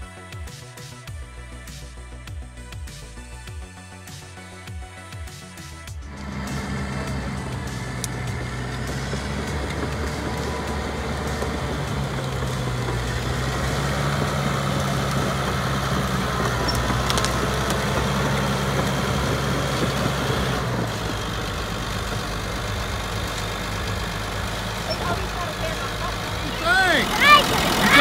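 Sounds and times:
bulldozer diesel engine running: 0:05.9 - 0:28.0.

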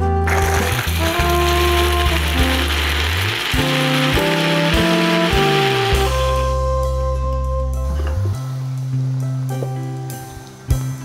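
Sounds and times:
background music with bass line: 0:00.0 - 0:11.0
mixer grinder running: 0:00.3 - 0:06.4.

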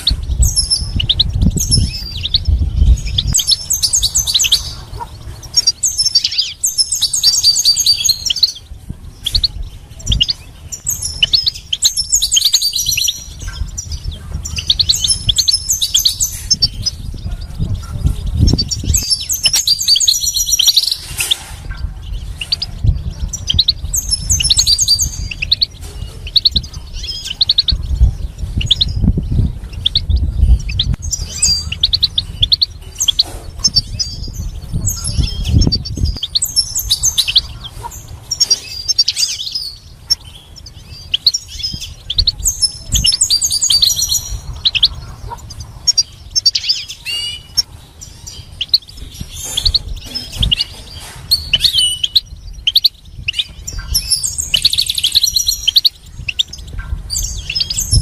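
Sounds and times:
bird twittering and chirping: 0:00.0 - 0:58.0
low rumble: 0:07.9 - 0:38.9.

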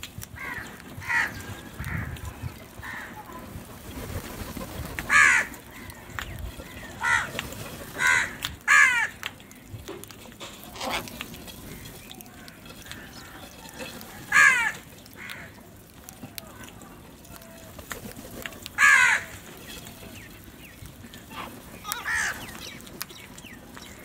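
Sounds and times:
crows cawing: 0:00.4 - 0:03.4, 0:05.0 - 0:09.7, 0:10.7 - 0:15.9, 0:18.7 - 0:19.5, 0:21.3 - 0:22.8.

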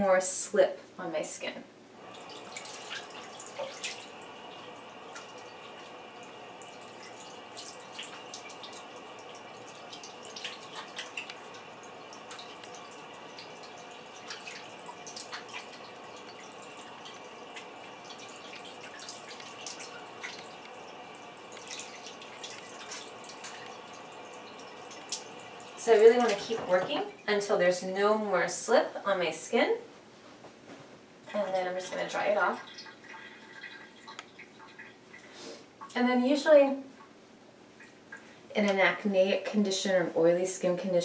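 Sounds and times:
water splashing on face: 0:02.0 - 0:27.2
tap running into sink: 0:05.1 - 0:27.1.

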